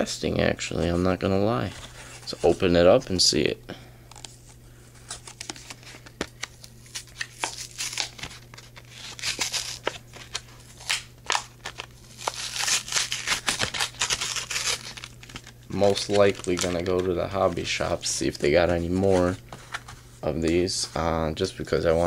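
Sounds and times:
plastic packaging crackling and tearing: 0:05.1 - 0:18.2.

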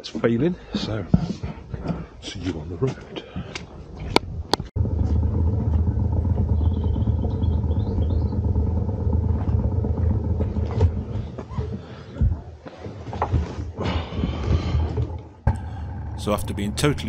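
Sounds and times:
motorcycle engine idling: 0:04.8 - 0:12.0, 0:15.5 - 0:17.0.

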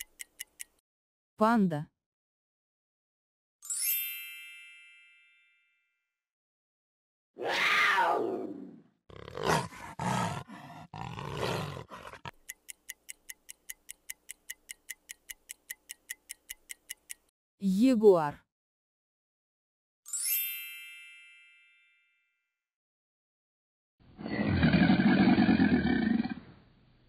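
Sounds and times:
timer ticking: 0:00.0 - 0:00.8, 0:12.2 - 0:17.3.

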